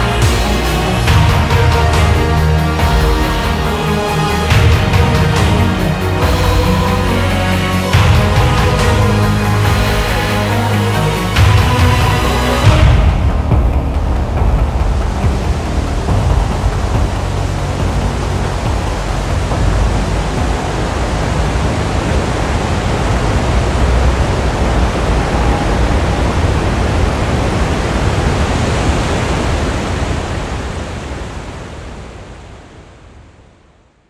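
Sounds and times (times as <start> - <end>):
waterfall roaring: 0.0 - 33.3.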